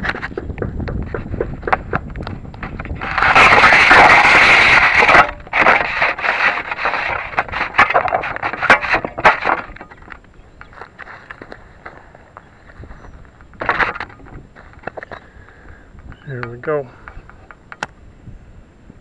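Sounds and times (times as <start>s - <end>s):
scraping rub on camera: 2.6s - 9.9s.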